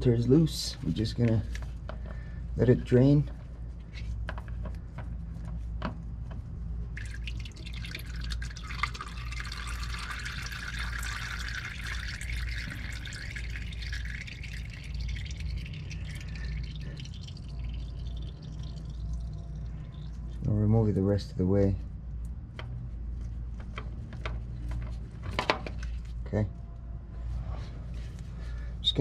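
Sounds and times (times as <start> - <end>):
oil draining and dripping: 0.0 - 21.1.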